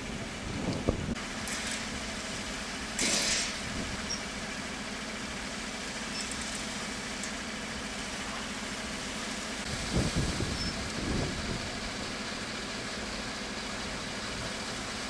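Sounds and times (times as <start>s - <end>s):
strong wind blowing: 0.0s - 1.2s, 9.7s - 11.9s.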